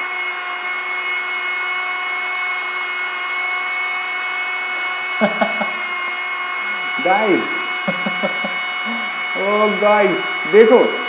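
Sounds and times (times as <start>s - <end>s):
hair dryer running: 0.0s - 11.0s
man laughing: 5.1s - 6.0s, 7.3s - 9.3s.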